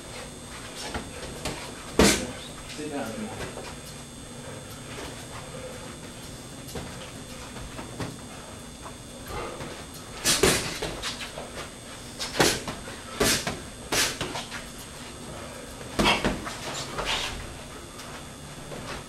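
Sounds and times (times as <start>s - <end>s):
boxing gloves slapping: 9.6s - 11.3s, 12.2s - 14.6s, 16.0s - 16.6s.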